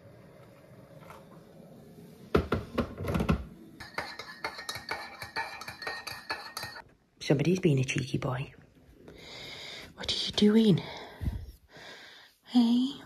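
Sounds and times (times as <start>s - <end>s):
teaspoon clinking in mug: 3.8s - 6.8s.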